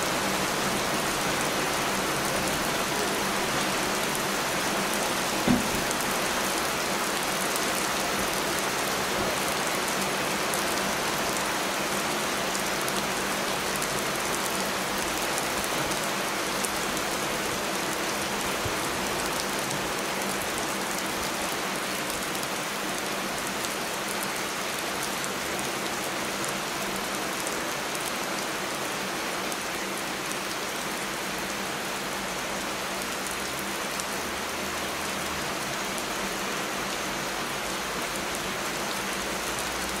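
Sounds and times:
heavy rain falling: 0.0 - 40.0
brief thump: 5.4 - 5.8.

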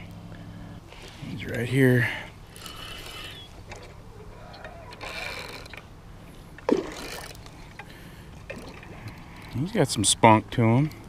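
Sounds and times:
fish splashing and thrashing in water: 6.5 - 9.6.

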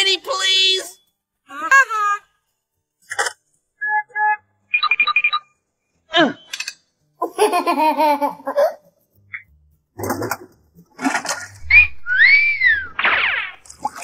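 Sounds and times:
cartoon beeps and chirps: 11.6 - 13.6
falling pitch glide: 11.6 - 13.6.

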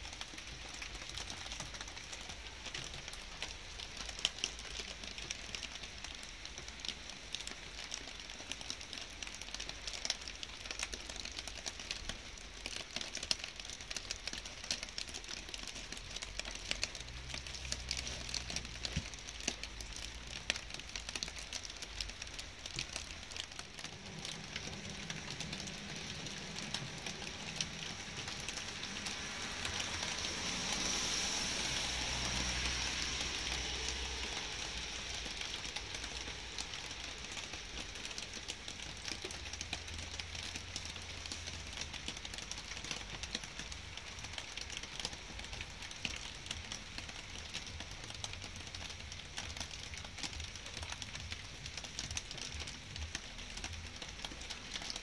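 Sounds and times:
light rain falling: 0.0 - 55.0
raindrops ticking: 0.0 - 55.0
rushing hiss: 24.0 - 37.8.

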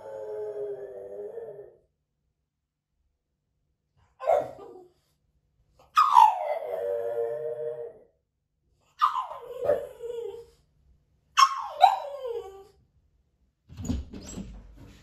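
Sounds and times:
dog whining: 5.9 - 8.0, 9.0 - 10.6, 11.4 - 12.8.

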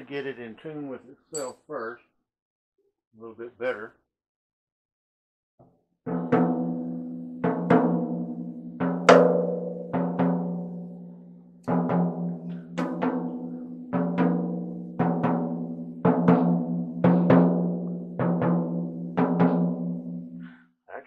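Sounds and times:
drumstick striking floor tom: 6.1 - 20.4.

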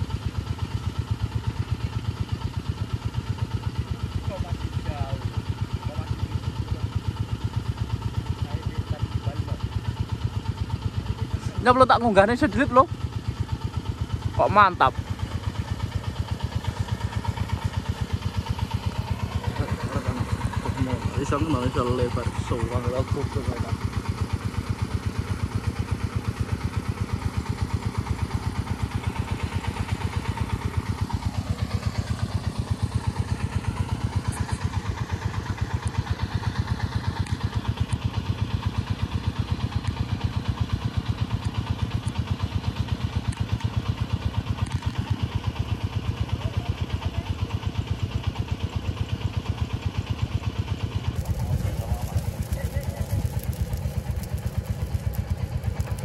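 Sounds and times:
engine running: 0.0 - 56.0.

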